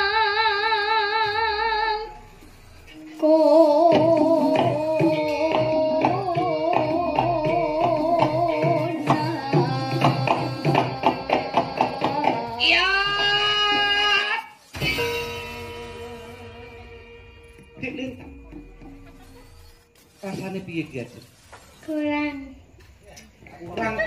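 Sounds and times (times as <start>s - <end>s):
girl singing with vibrato: 0.0s - 2.3s, 3.0s - 17.6s
quick hand-drum strokes: 3.6s - 16.4s.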